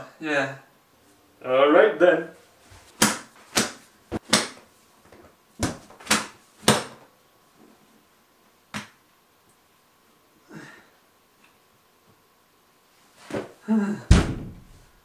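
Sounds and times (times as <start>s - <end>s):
books slapping onto pile: 2.9s - 7.0s, 13.2s - 14.8s.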